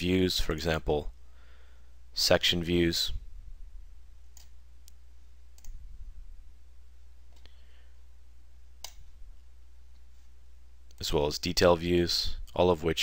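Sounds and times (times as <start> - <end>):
low steady hum: 0.0 - 13.0
computer mouse clicks: 4.3 - 5.0, 5.6 - 5.8, 8.8 - 9.1.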